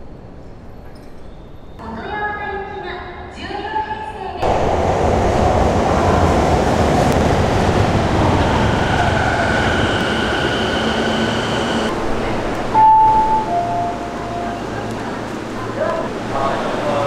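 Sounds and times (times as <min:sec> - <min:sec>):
train braking rumble and whine: 0:04.2 - 0:17.0
steady high whine: 0:07.1 - 0:17.0.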